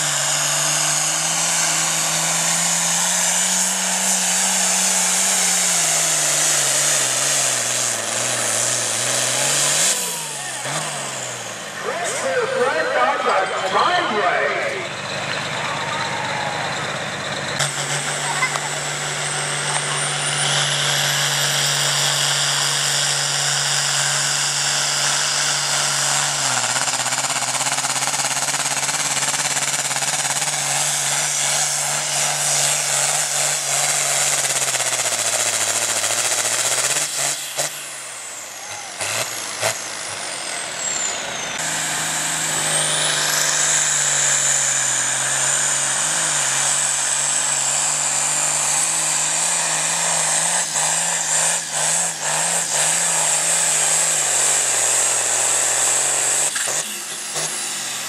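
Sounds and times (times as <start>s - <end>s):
tractor engines at full load: 0.0s - 58.0s
high whistle over engine: 12.0s - 17.4s.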